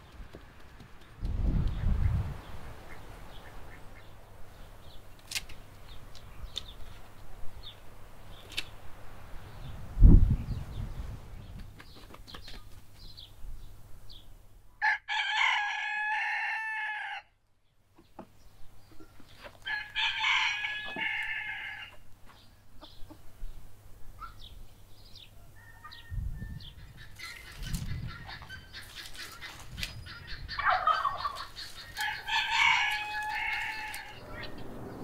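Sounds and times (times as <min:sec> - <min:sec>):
rooster crowing: 0:14.8 - 0:17.3, 0:19.6 - 0:22.0, 0:25.4 - 0:26.6, 0:32.0 - 0:34.6.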